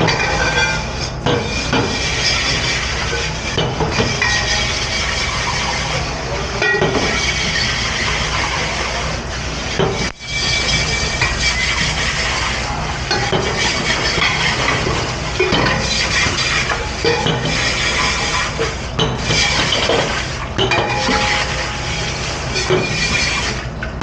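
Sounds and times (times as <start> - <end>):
running machinery: 0.0 - 24.0
dishes knocking: 6.6 - 7.2, 13.1 - 17.6, 19.0 - 21.8.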